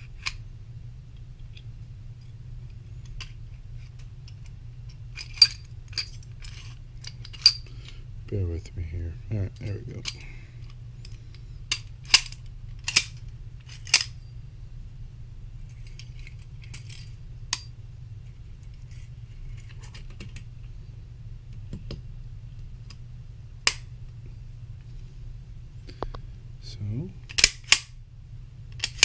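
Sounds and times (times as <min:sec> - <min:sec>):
metal pistol parts clicking: 0:00.2 - 0:00.4, 0:01.4 - 0:07.9, 0:10.0 - 0:14.2, 0:15.7 - 0:17.7, 0:23.6 - 0:23.9, 0:27.3 - 0:28.0, 0:28.7 - 0:29.0.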